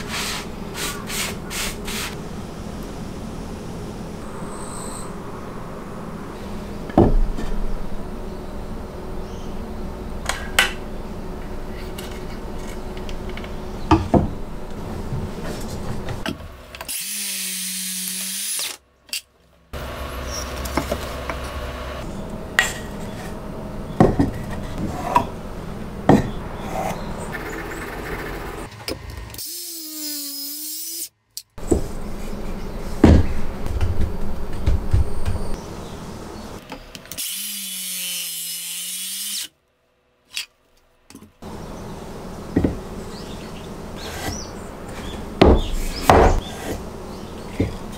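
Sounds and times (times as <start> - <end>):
high-pitched power tool whir: 16.9 - 18.8.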